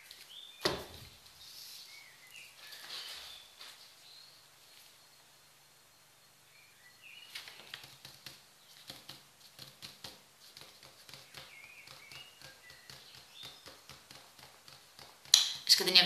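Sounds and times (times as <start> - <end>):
faint bird chirps: 1.4 - 7.9, 11.0 - 13.9.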